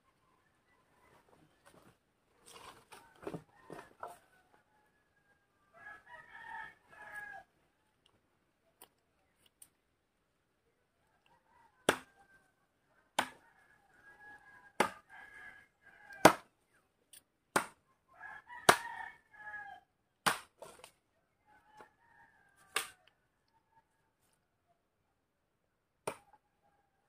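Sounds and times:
rooster crowing: 3.0s - 7.5s, 18.2s - 19.9s
machete chopping tree trunk: 11.8s - 12.1s, 13.2s - 13.4s, 14.8s - 15.0s, 16.2s - 16.5s, 17.5s - 17.8s, 18.7s - 18.9s, 20.2s - 20.8s, 22.7s - 23.0s, 26.0s - 26.3s.

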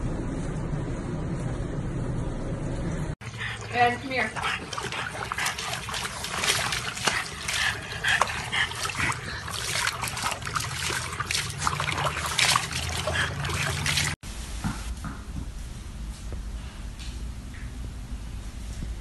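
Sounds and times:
water splashing in a plastic tub: 3.2s - 14.2s
water spilling onto concrete: 3.7s - 14.2s.

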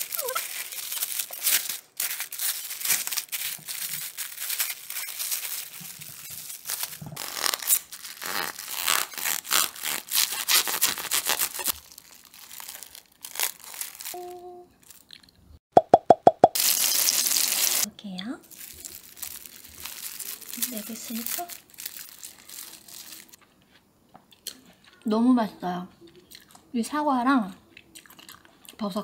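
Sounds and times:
cling wrap crinkling: 0.0s - 15.2s, 16.6s - 23.4s.

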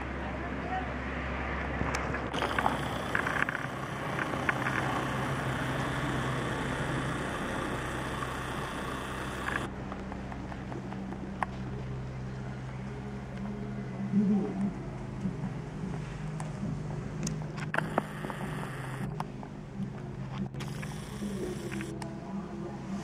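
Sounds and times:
light aircraft engine droning: 0.0s - 23.0s
hiss: 2.4s - 9.7s.

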